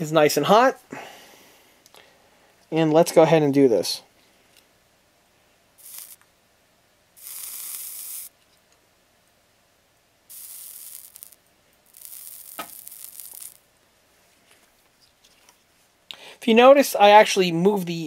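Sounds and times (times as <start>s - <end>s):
solder flux sizzling: 5.8s - 6.3s, 7.2s - 8.5s, 10.3s - 13.7s.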